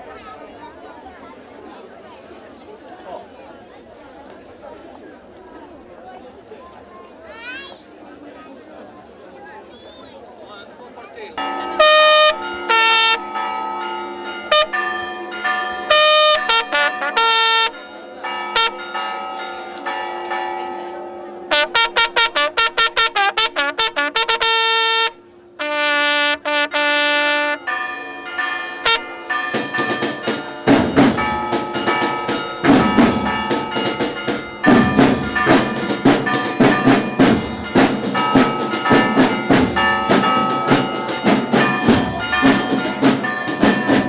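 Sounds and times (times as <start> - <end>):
bugle fanfare calls: 11.7 - 13.2, 14.5 - 14.8, 15.9 - 17.8, 18.6 - 18.8, 21.5 - 27.6
drums: 29.4 - 44.0.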